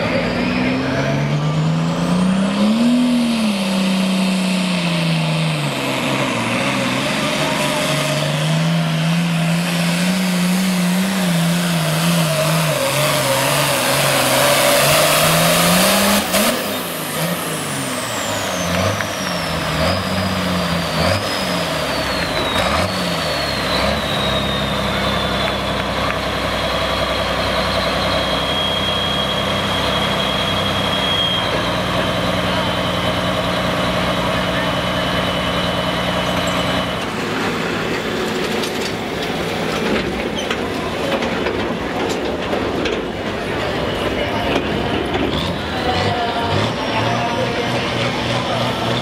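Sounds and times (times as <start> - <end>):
diesel tractor engine revving: 0.0 - 49.0
turbocharger whistle: 10.3 - 26.2, 26.9 - 33.2.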